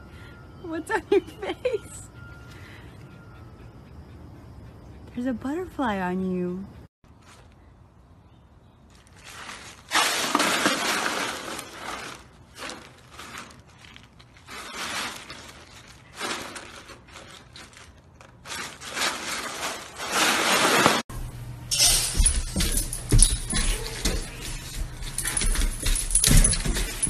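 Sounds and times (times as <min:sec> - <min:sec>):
ice cubes crunching and clattering: 0:09.0 - 0:21.0.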